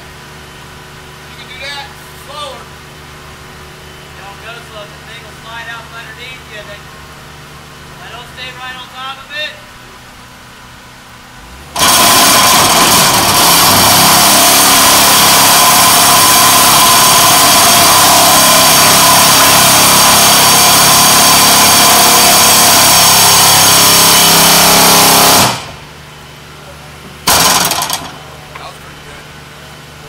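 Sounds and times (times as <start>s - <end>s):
vibratory pile driver buzzing drone: 11.3s - 26.1s, 27.2s - 29.4s.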